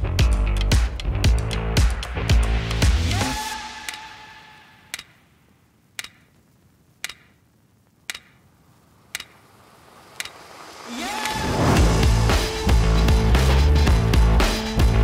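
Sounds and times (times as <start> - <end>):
sharp clock-like tick: 4.9 - 5.2, 6.0 - 6.4, 7.0 - 7.4, 8.1 - 8.5, 9.1 - 9.4, 10.2 - 10.4.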